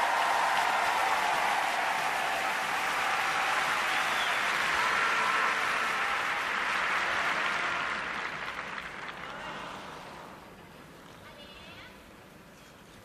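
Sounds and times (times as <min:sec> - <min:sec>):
large crowd applauding: 0:00.0 - 0:10.4.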